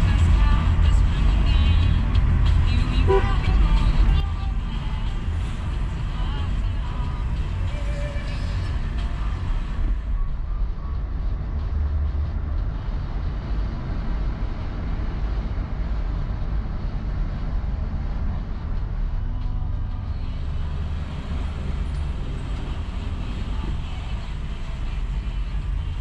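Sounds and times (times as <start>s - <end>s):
car cabin rumble: 0.0s - 15.7s.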